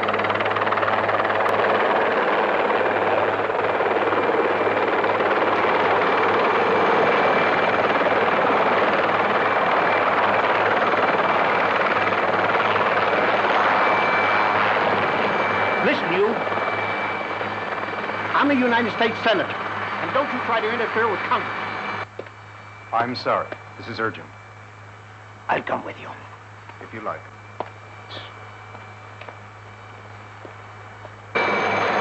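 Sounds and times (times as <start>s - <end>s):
helicopter rotor and engine: 0.0s - 32.0s
high turbine whine: 0.0s - 32.0s.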